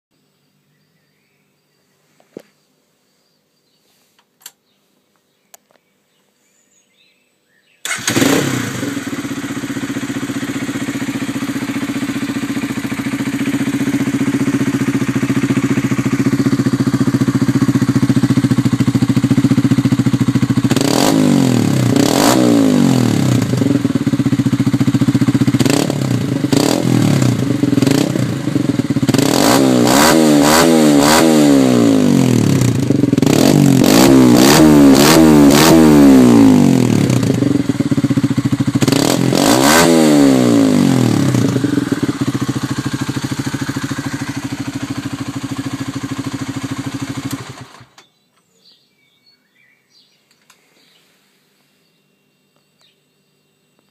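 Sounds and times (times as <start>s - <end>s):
motorcycle engine revving: 7.8s - 48.0s
motorcycle engine idling: 7.9s - 48.2s
faint clicks: 50.2s - 50.6s.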